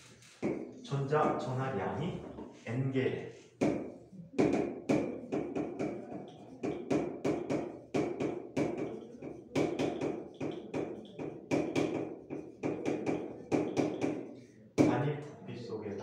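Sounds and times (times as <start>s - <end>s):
pen tapping on board: 0.3s - 1.4s, 3.6s - 15.0s.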